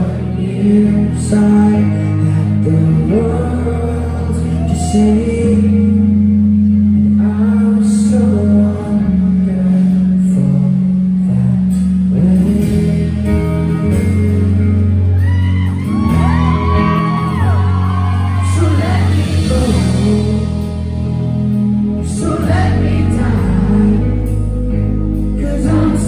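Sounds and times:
electric guitars: 0.0 - 26.0
heavy bass line: 0.0 - 26.0
person singing long sliding notes: 15.8 - 21.1, 21.8 - 26.0.

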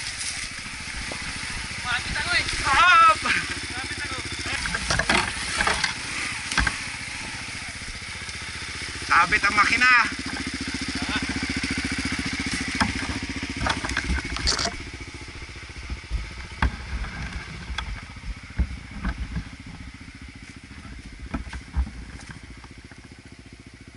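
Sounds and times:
motorcycle engine running: 0.0 - 23.9
knocks and clatter: 4.5 - 6.9, 12.6 - 14.9.

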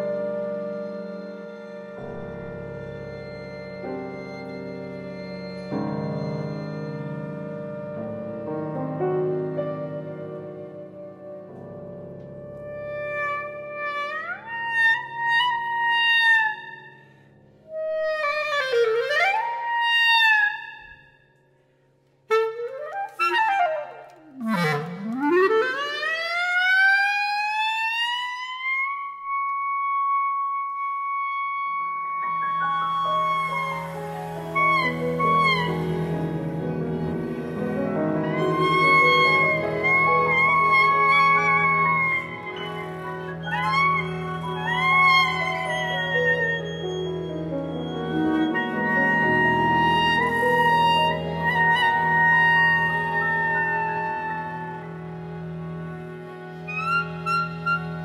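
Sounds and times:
breathy flute: 0.0 - 11.6, 12.6 - 58.0
piano arpeggios: 0.0 - 16.9, 32.2 - 58.0
clarinet glissandi: 0.0 - 21.2, 22.3 - 58.0.

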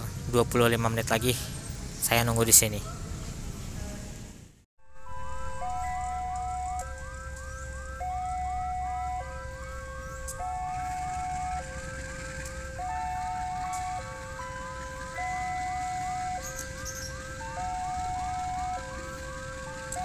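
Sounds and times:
level crossing two-tone alarm: 4.8 - 20.0.

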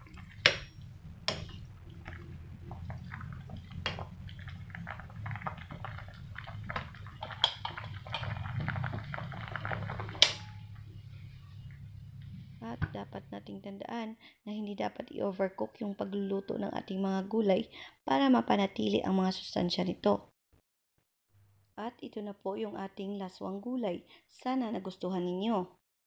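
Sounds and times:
soup bubbling and popping: 0.0 - 13.3
low steady hum: 0.0 - 13.9.

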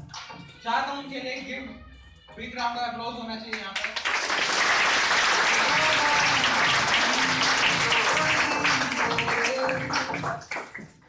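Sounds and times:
music playing: 0.0 - 11.0
audience applause: 3.8 - 10.9.

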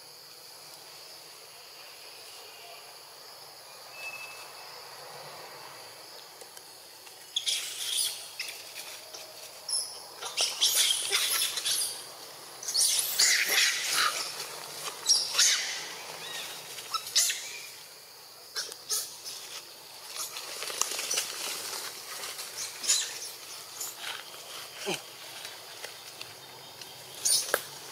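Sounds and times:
rustling in dry leaves: 6.0 - 18.2, 18.9 - 27.9.

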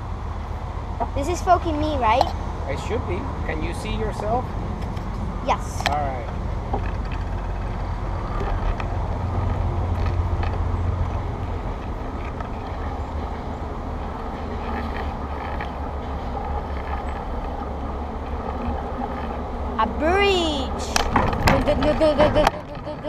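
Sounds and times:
bicycle clicks and rattles: 4.1 - 19.7, 20.9 - 23.0.

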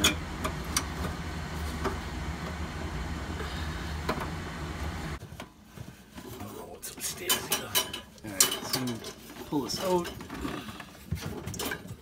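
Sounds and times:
low mechanical hum: 0.0 - 6.8.

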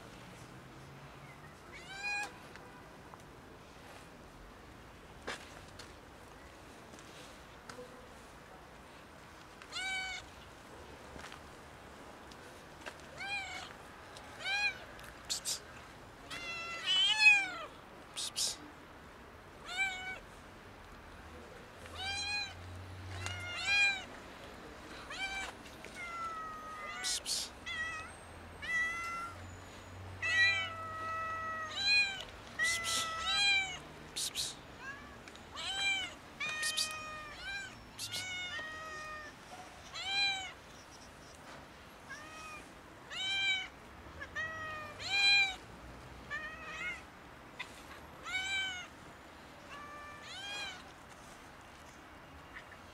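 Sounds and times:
cats meowing: 21.9 - 24.1, 25.1 - 29.5, 30.2 - 40.6, 42.0 - 45.6, 46.3 - 48.9.

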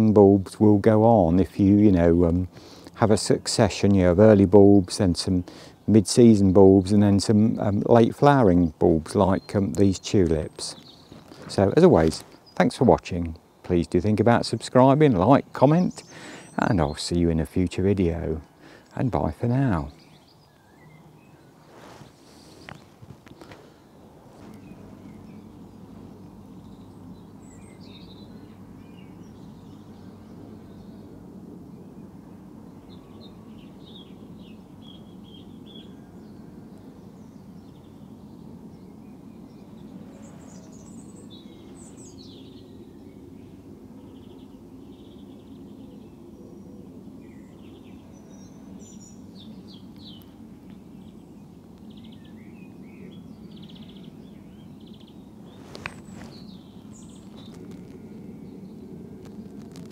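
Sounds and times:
small birds singing and chirping: 0.0 - 59.9
low background rumble: 22.8 - 59.9.

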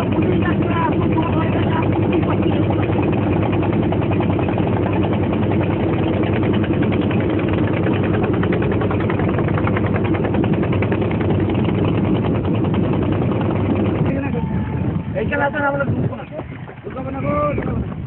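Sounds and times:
boat engine chugging: 0.0 - 18.0.

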